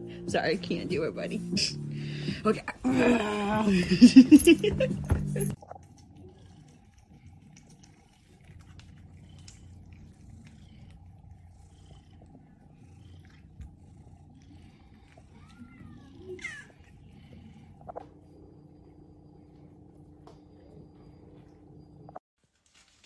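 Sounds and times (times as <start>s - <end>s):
cats purring: 0.1s - 22.2s
cat meowing: 15.0s - 16.9s.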